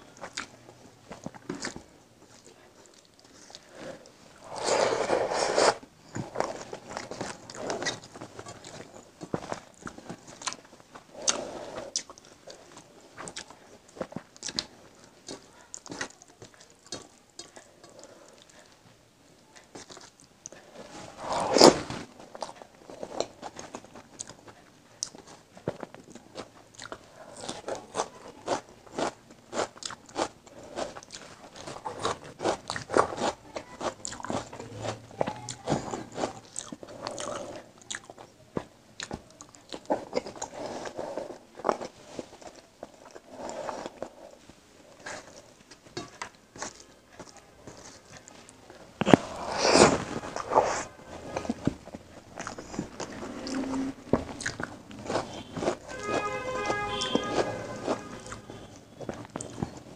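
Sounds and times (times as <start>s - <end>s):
wet chewing and mouth sounds: 0.0s - 18.9s, 19.5s - 59.9s.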